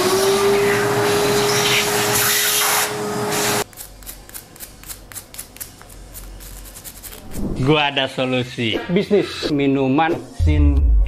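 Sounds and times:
vacuum cleaner motor whine: 0.0 - 3.6
brush scratching: 1.6 - 7.5.

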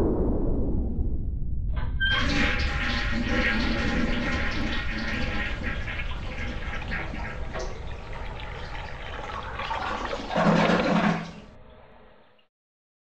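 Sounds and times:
toilet flushing: 2.0 - 12.4.

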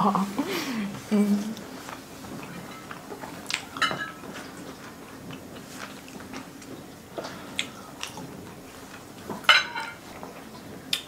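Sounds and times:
chewing and mouth noises: 2.4 - 9.1.

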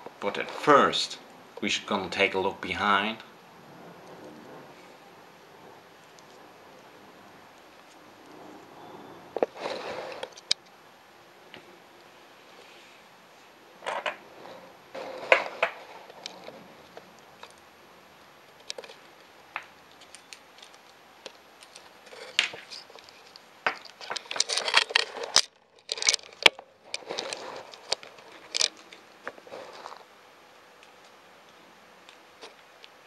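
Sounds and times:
leather strap rustling: 18.7 - 30.1.

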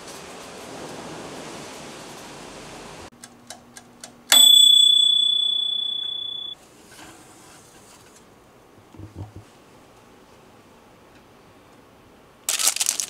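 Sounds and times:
timer bell ding: 4.3 - 6.6
timer ticking: 4.3 - 6.6.

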